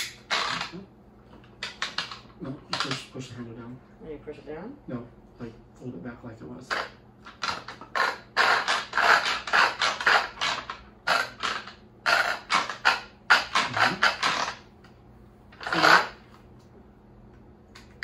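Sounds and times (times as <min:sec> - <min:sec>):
food processor rasping clicks: 0:06.7 - 0:14.6.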